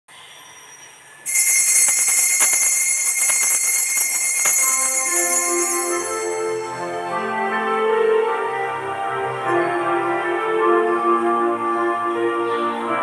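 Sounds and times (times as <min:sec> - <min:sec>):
small altar bells shaking: 0:01.3 - 0:07.0
keyboard hymn notes: 0:01.3 - 0:13.0.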